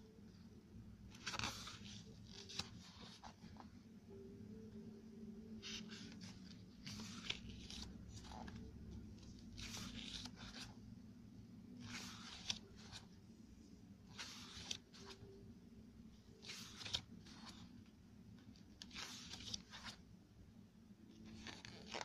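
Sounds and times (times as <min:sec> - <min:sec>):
pages turning: 0:01.1 - 0:03.7, 0:05.6 - 0:10.8, 0:11.7 - 0:13.2, 0:14.0 - 0:15.3, 0:16.3 - 0:20.0, 0:21.2 - 0:22.0.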